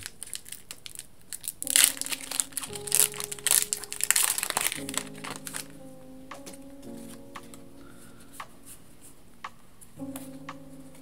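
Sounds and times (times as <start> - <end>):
foil wrapper crinkling: 0.0 - 5.7.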